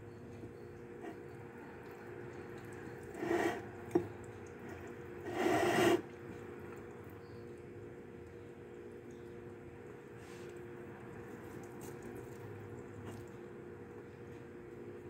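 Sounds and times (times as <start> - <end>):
slurping noodles: 3.1 - 3.7, 4.8 - 6.2.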